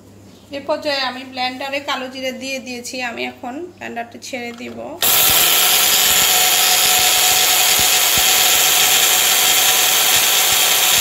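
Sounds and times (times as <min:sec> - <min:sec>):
blender grinding seeds: 0:05.0 - 0:11.0.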